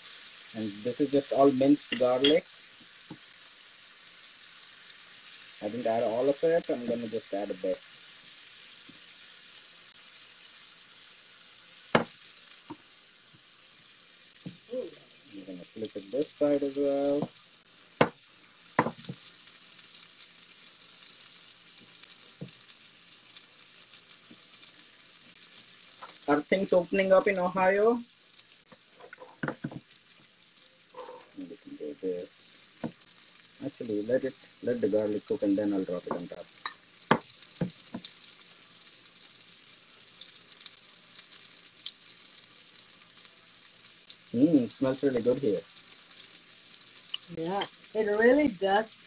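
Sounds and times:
fish sizzling in a skillet: 0.0s - 49.0s
spatula knocking on pan: 18.0s - 18.2s, 18.8s - 19.2s, 29.2s - 29.8s, 37.1s - 38.1s
fat spitting and crackling: 30.9s - 32.3s.

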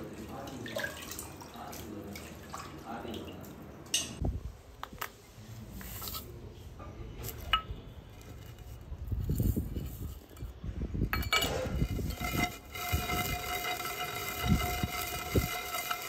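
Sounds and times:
metallic clink: 11.1s - 11.6s.

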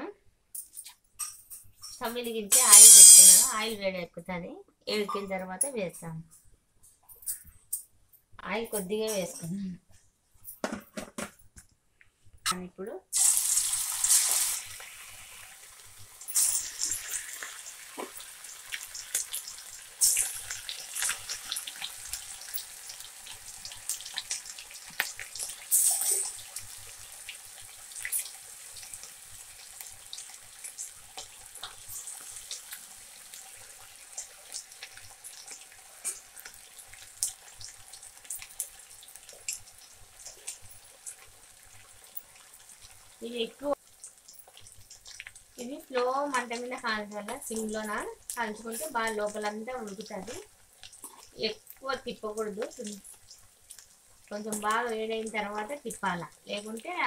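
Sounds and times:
chicken deep-frying in oil: 1.9s - 3.7s, 13.1s - 57.0s.

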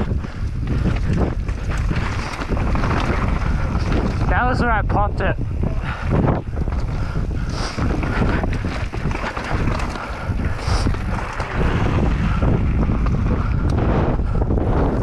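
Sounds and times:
mountain bike rumbling on trail: 0.0s - 15.0s
wind buffeting microphone: 0.0s - 15.0s.

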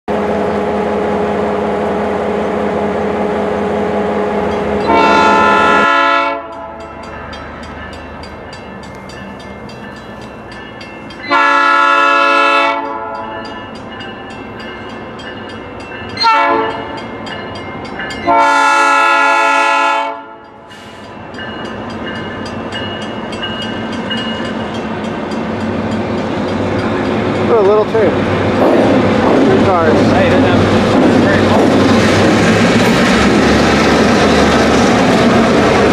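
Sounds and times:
train rolling: 0.1s - 35.9s
locomotive horn: 4.8s - 7.1s, 11.3s - 13.4s, 16.2s - 17.0s, 18.3s - 20.6s.

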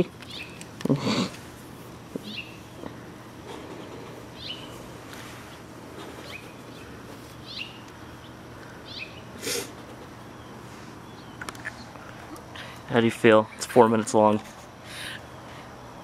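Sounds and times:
squirrel chirping: 0.0s - 0.8s, 2.2s - 2.9s, 3.8s - 12.5s.

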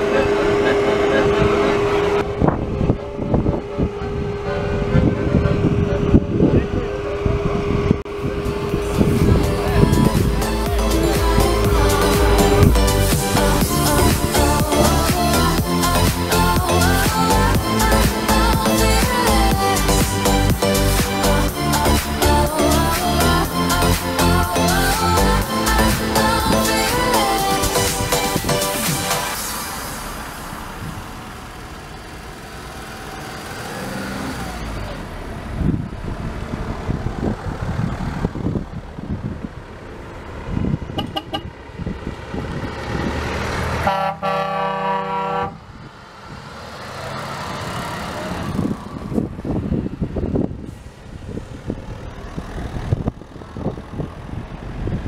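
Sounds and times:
vehicle horn: 0.0s - 2.3s, 3.6s - 7.1s, 40.9s - 41.6s, 43.8s - 45.7s
vehicles driving past: 0.0s - 55.0s.

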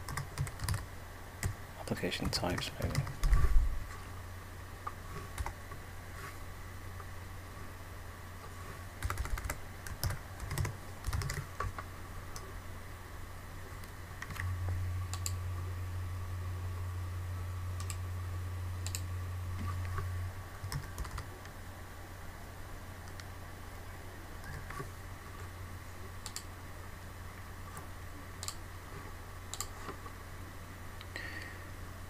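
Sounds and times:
low hum: 2.9s - 32.0s
keyboard keystrokes: 9.0s - 11.8s
mouse clicks: 26.2s - 26.5s, 29.5s - 29.8s.

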